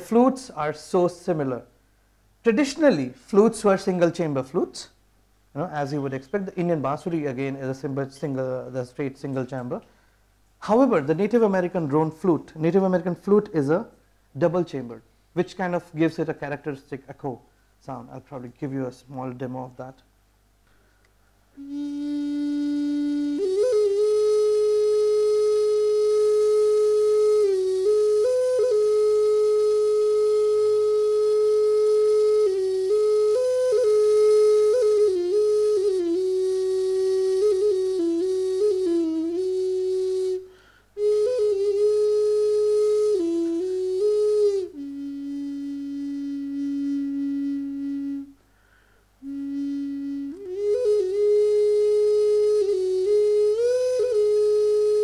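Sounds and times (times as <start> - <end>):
wooden flute solo: 21.5 - 48.5, 49.2 - 55.0.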